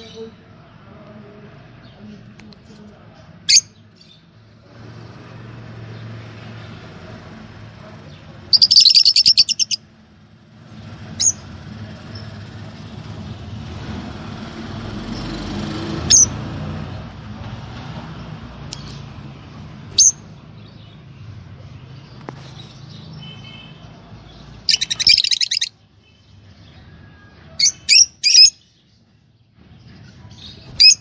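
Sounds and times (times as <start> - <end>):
lovebirds chirping: 0.0 - 4.5, 8.2 - 10.0, 18.5 - 31.0.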